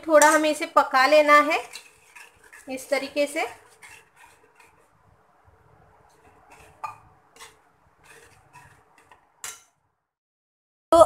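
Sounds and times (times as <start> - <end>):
spoon stirring gravy in metal pot: 0.0 - 9.8.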